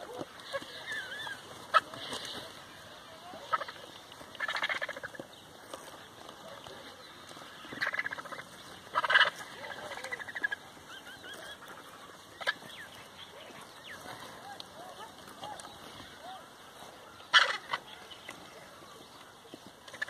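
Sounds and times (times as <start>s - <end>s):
vultures cackling: 0.0s - 20.0s.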